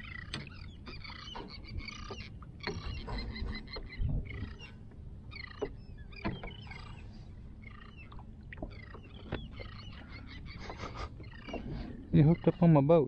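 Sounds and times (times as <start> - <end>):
water lapping against hull: 0.0 - 13.0
light knocks on hull: 5.5 - 6.6.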